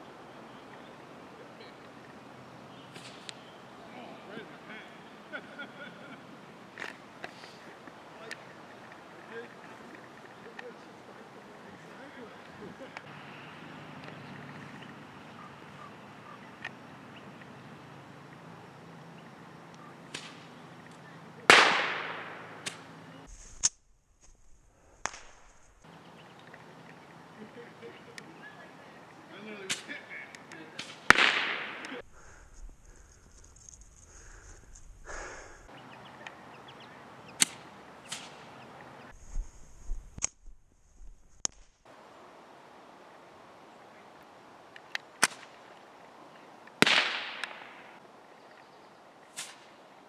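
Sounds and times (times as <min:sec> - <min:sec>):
firework loud crack: 0:02.9 - 0:03.4, 0:20.1 - 0:20.6, 0:21.4 - 0:23.0, 0:30.8 - 0:32.0, 0:46.8 - 0:48.0
firework pops: 0:02.9 - 0:03.4, 0:20.1 - 0:22.9, 0:25.0 - 0:25.5, 0:29.7 - 0:32.0, 0:37.4 - 0:38.6, 0:44.8 - 0:45.6, 0:46.7 - 0:48.0, 0:49.3 - 0:49.7
firework hiss: 0:02.9 - 0:03.5, 0:06.7 - 0:08.3, 0:37.4 - 0:40.2, 0:49.3 - 0:49.8
short snap: 0:03.0 - 0:03.4, 0:19.7 - 0:22.9, 0:25.0 - 0:25.4, 0:29.7 - 0:32.0, 0:37.4 - 0:38.9, 0:44.8 - 0:45.6, 0:46.8 - 0:47.8, 0:49.4 - 0:49.7
faint clicks: 0:35.6 - 0:39.2.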